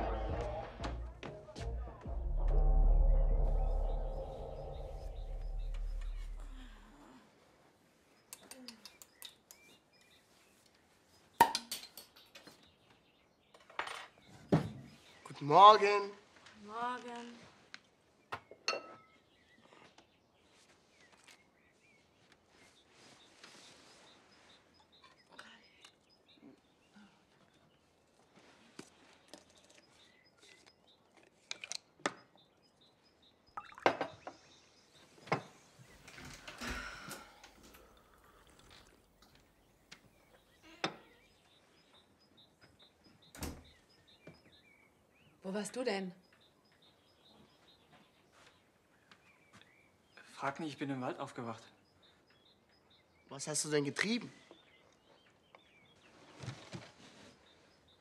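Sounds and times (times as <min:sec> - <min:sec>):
faint bird chirps: 0:02.4 - 0:11.4, 0:18.2 - 0:58.0
dishes and glasses clinking: 0:18.6 - 0:19.1
short rustle: 0:20.5 - 0:24.7.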